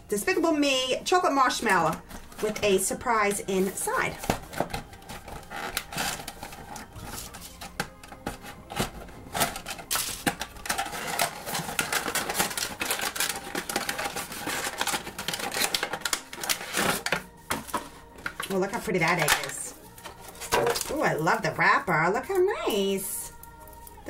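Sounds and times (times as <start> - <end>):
plastic packaging crinkling: 3.5 - 21.2.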